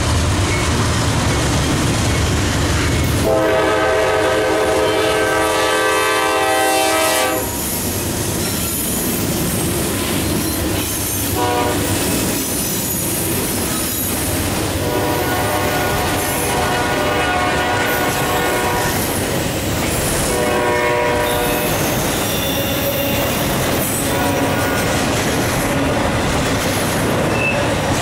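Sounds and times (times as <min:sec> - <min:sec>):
diesel locomotive engines rumbling: 0:00.0 - 0:28.0
train wheels on rails: 0:00.0 - 0:28.0
train horn chord: 0:03.2 - 0:07.6, 0:11.4 - 0:11.8, 0:14.8 - 0:19.0, 0:20.3 - 0:21.7, 0:24.1 - 0:24.8.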